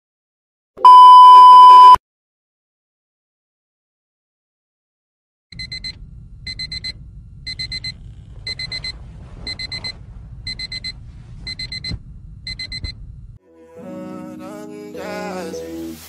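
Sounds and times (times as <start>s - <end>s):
low rumble: 5.6s - 13.4s
alarm high-pitched beeps: 9.5s - 13.0s.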